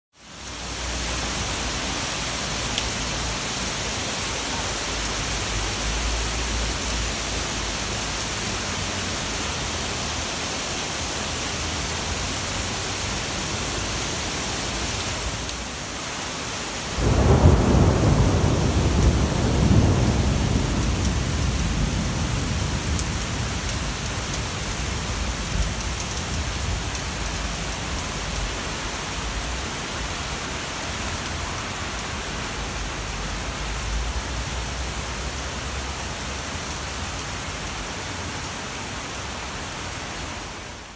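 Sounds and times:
heavy rain falling: 0.2s - 40.9s
thunder rumble: 17.0s - 27.3s.

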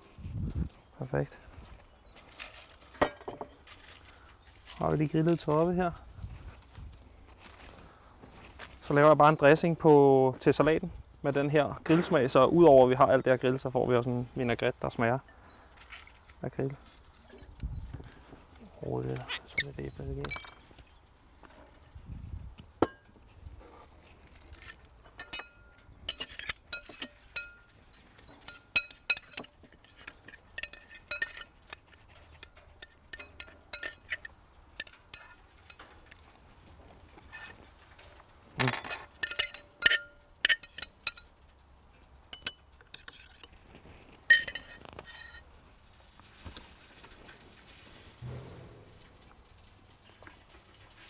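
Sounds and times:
utensil clinking against bowl: 25.2s - 35.8s, 38.6s - 41.3s, 44.3s - 45.3s.

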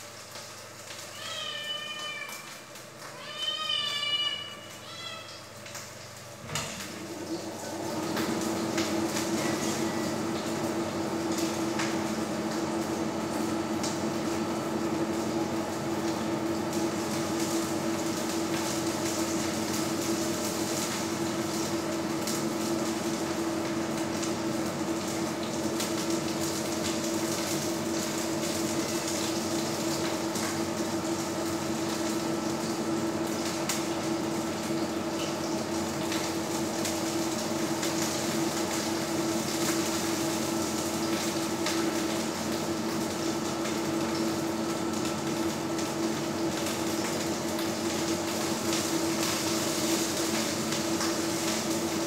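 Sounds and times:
meat sizzling in a pan: 46.2s - 52.0s.

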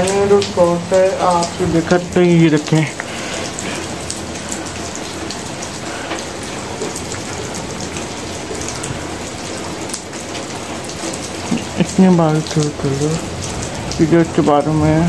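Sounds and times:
rain on concrete rooftop: 0.0s - 15.0s.

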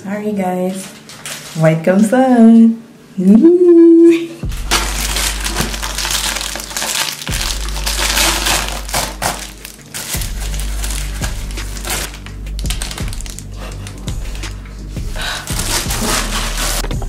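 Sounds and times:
plastic mailer crinkling and tearing: 4.5s - 14.5s, 15.2s - 16.9s.

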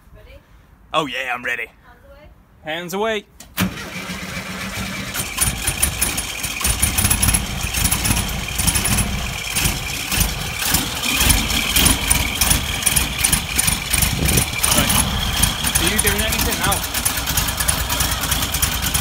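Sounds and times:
engine idling unevenly: 4.2s - 19.0s.

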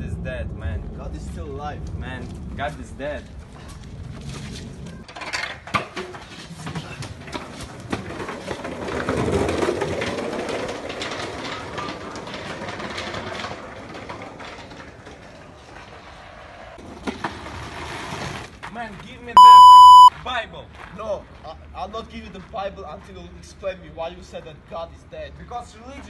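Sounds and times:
skateboard rolling on concrete: 1.3s - 19.1s.

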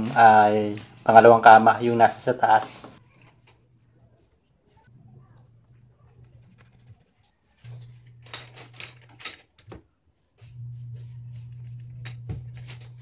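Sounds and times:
low hum: 10.4s - 13.0s.

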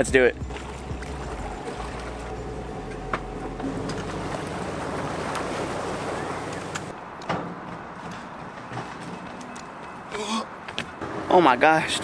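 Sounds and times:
rushing wash of water: 0.5s - 2.9s, 3.6s - 6.9s.

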